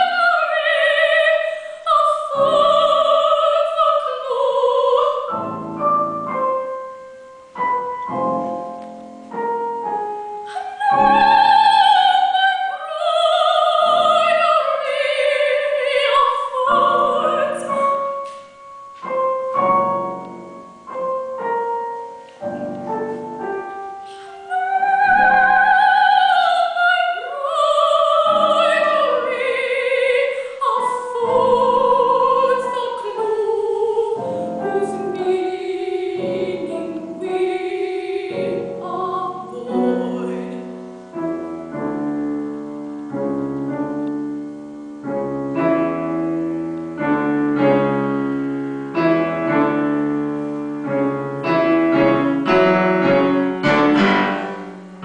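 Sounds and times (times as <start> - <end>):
woman singing with vibrato: 0.0 - 6.4, 10.4 - 18.2, 24.0 - 41.2
piano accompaniment: 0.0 - 55.0.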